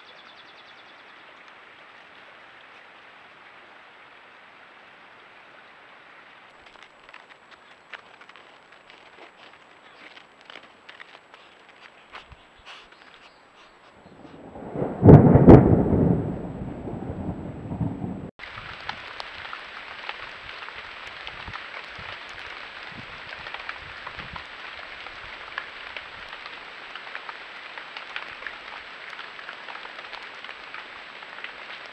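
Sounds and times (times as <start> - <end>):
rain pattering: 1.0 - 31.9
loud low rumble: 14.2 - 18.3.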